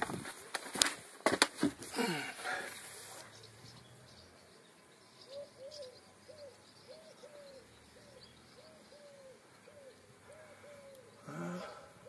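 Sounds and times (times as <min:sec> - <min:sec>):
bird cooing: 0:05.2 - 0:12.0.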